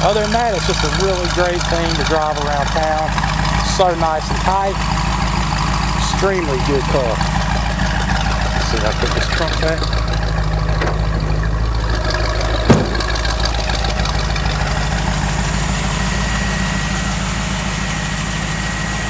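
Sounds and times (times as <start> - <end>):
car engine idling: 0.0 - 19.0
trunk lid thumping shut: 10.7 - 11.4, 12.6 - 13.5.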